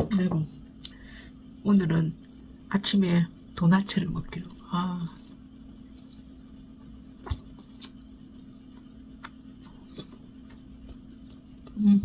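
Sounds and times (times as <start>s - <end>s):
low hum: 0.0s - 12.0s
person chewing with mouth clicks: 6.9s - 11.9s.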